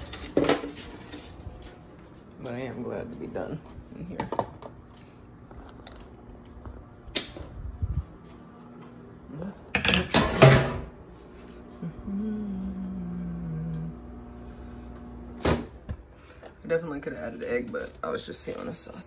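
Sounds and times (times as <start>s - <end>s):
microwave oven humming: 0.0s - 19.0s
dishes clattering into metal sink: 9.8s - 10.9s.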